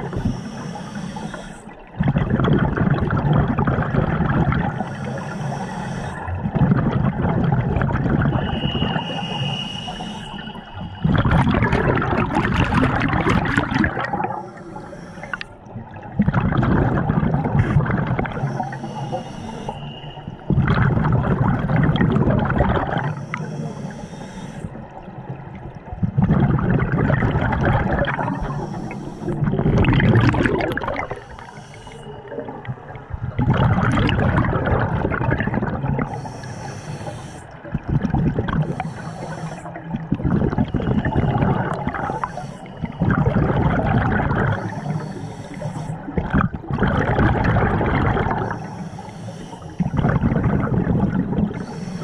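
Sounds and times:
exhaled bubbles gushing: 0:00.0 - 0:00.6, 0:01.8 - 0:14.5, 0:15.2 - 0:23.5, 0:24.7 - 0:36.5, 0:37.5 - 0:48.6, 0:49.6 - 0:52.0
regulator hiss on inhale: 0:00.0 - 0:01.9, 0:04.6 - 0:06.4, 0:08.4 - 0:11.1, 0:14.2 - 0:15.7, 0:18.3 - 0:20.5, 0:23.0 - 0:25.1, 0:28.0 - 0:29.6, 0:31.0 - 0:32.6, 0:36.0 - 0:37.8, 0:38.5 - 0:40.0, 0:40.7 - 0:43.2, 0:44.4 - 0:46.2, 0:48.3 - 0:50.2, 0:50.9 - 0:52.0.

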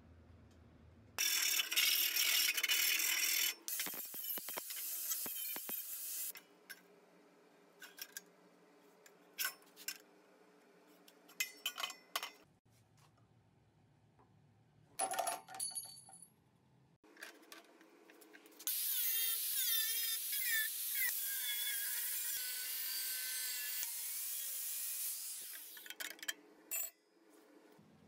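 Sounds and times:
metal clinks and knocks: 0:15.0 - 0:16.3.

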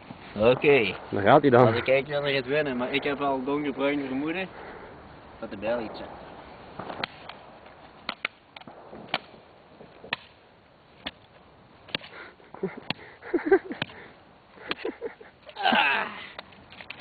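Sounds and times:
person shouting: 0:15.6 - 0:16.3.

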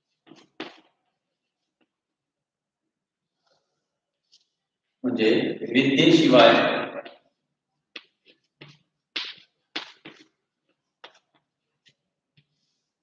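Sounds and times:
chalk tapping and scratching on blackboard: 0:07.9 - 0:13.0.

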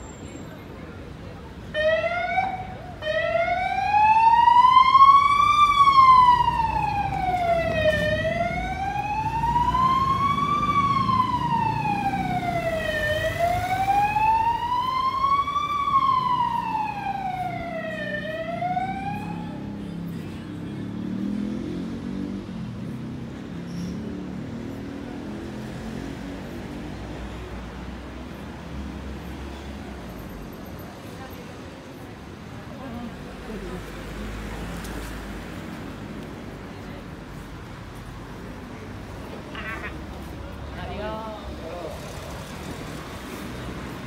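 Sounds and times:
low traffic rumble: 0:00.0 - 0:44.0
emergency vehicle siren wailing: 0:01.7 - 0:19.8.

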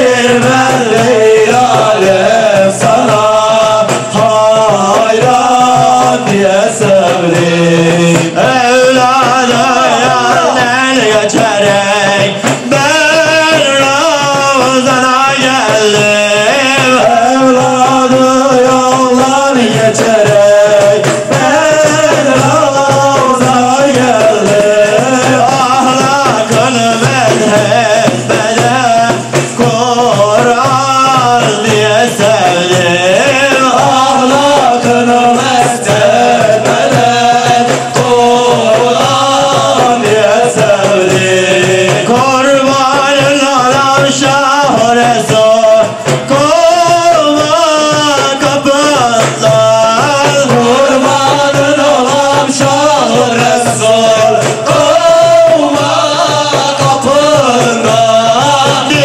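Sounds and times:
frame drums: 0:00.0 - 0:59.0.

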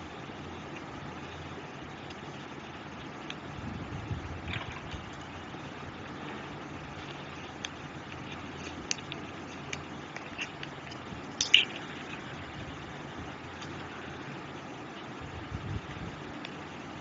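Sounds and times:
steady hiss: 0:00.0 - 0:17.0
slime squishing: 0:06.9 - 0:12.5.

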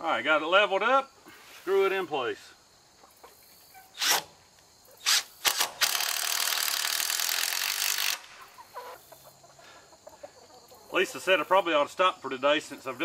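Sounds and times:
cordless drill driving a screw: 0:04.0 - 0:04.3, 0:05.0 - 0:08.3.

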